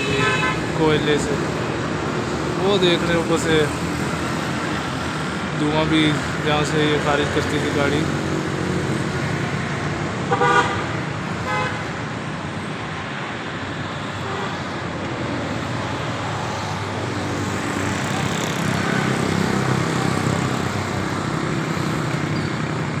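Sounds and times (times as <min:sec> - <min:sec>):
vehicle engine with road noise: 0:00.0 - 0:23.0.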